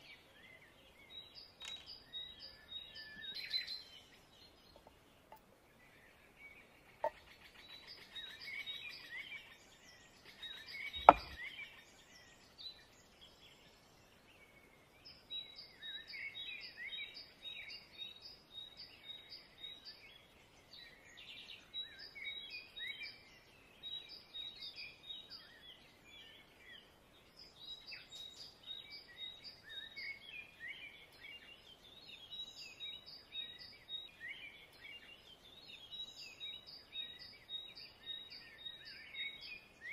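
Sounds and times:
small birds chirping: 0.0 - 39.9
sharp knock: 11.0 - 11.4.

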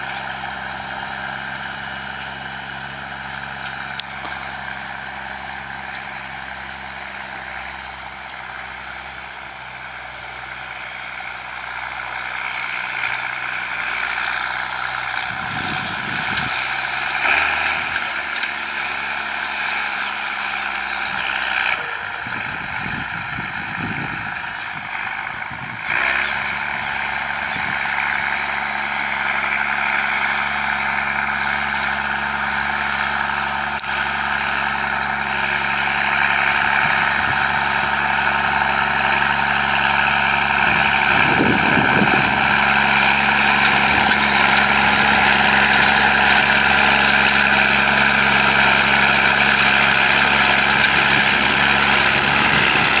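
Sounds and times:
tractor diesel engine under load: 0.0 - 53.0.

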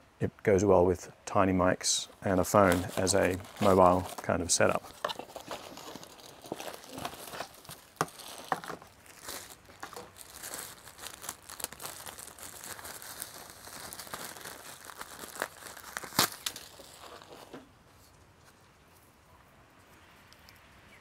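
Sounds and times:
plastic bag crinkling: 2.1 - 17.6.

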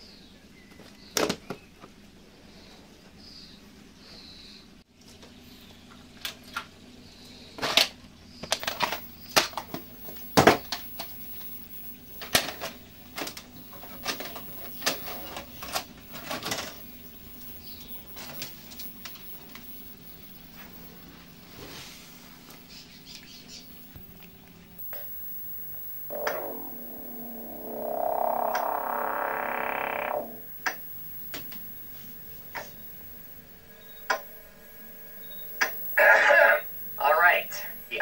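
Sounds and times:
faint high whine: 8.7 - 38.0.

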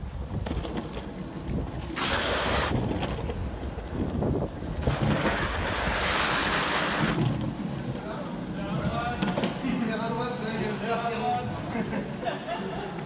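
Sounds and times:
wind buffeting microphone: 0.0 - 9.2
longboard wheels rolling on pavement: 0.0 - 13.0.

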